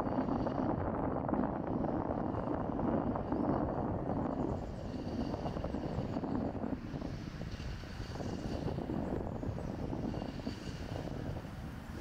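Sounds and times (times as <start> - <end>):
aircraft rumble overhead: 4.2 - 12.0.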